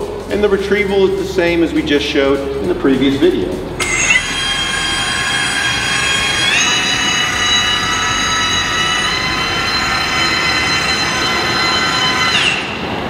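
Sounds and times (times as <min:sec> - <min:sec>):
electric motor whining: 0:03.8 - 0:12.8.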